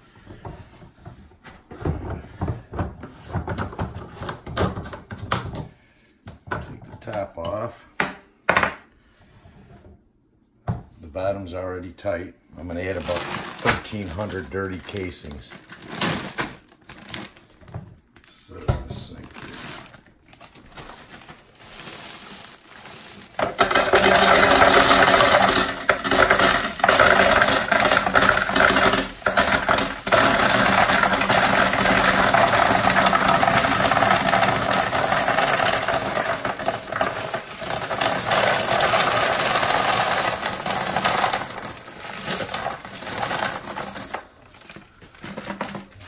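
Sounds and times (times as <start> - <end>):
metal casings clattering into drum: 21.5 - 44.4.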